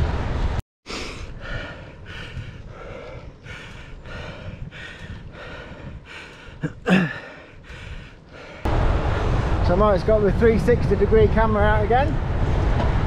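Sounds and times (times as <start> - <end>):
person breathing hard: 0.9 - 8.7.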